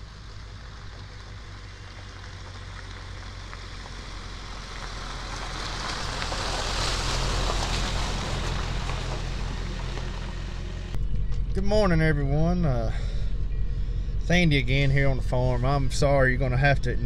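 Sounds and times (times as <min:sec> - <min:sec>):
truck engine hum: 0:00.0 - 0:17.0
tyres crunching on wet gravel: 0:00.1 - 0:11.0.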